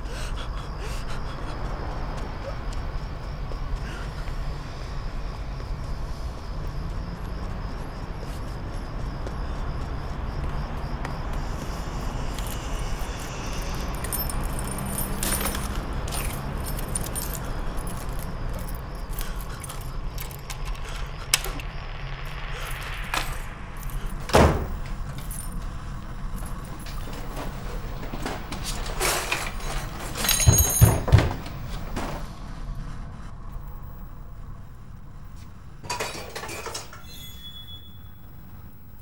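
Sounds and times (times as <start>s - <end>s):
keys jangling: 12.4s - 21.6s, 22.6s - 32.1s
door thumping: 24.2s - 25.2s, 27.5s - 32.2s
steady low rumble: 31.5s - 35.8s.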